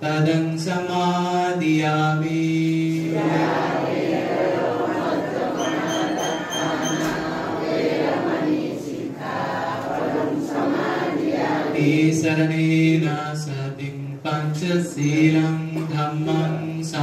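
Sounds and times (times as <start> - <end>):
group of voices chanting: 3.0 - 12.0.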